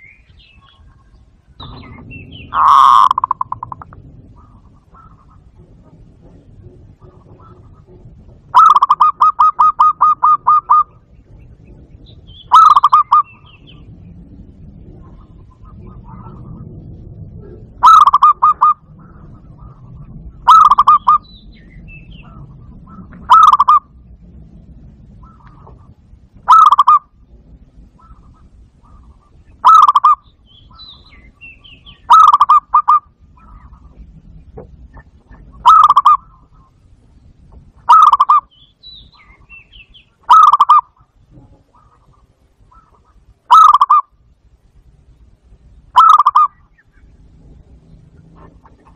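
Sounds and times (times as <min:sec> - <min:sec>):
dove cooing: 0:00.6 - 0:13.9, 0:14.7 - 0:21.3, 0:22.2 - 0:24.0, 0:25.1 - 0:27.2, 0:27.9 - 0:36.9, 0:37.9 - 0:38.5, 0:40.2 - 0:44.1, 0:45.9 - 0:46.8.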